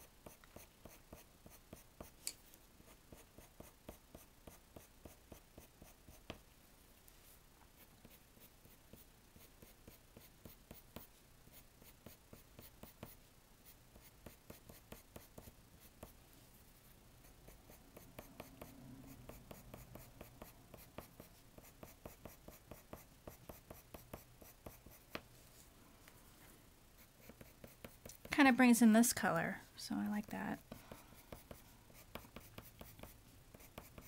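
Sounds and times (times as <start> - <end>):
pencil scratching on paper: 0.0 - 2.2, 2.8 - 6.4, 7.7 - 16.2, 17.3 - 25.2, 27.0 - 28.4, 30.6 - 34.0.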